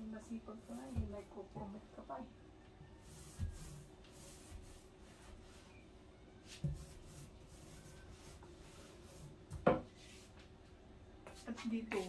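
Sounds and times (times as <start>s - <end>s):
paintbrush scraping on wood: 0.1s - 1.8s, 2.8s - 5.8s, 6.4s - 10.4s, 11.2s - 12.0s.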